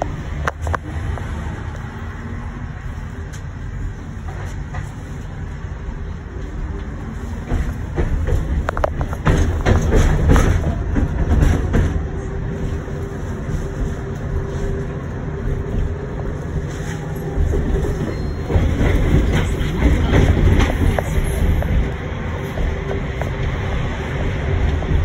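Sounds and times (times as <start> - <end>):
tram wheels rumbling on rails: 0.0 - 25.0
clicks over rail joints: 6.8 - 12.1.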